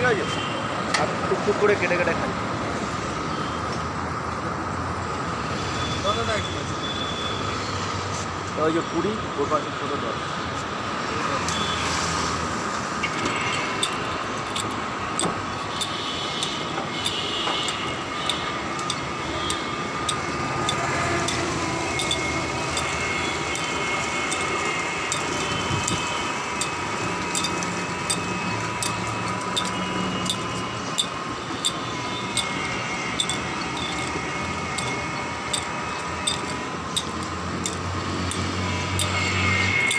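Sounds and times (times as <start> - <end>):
juice crusher machine droning: 13.3 - 39.9
regular ticking: 13.5 - 39.9.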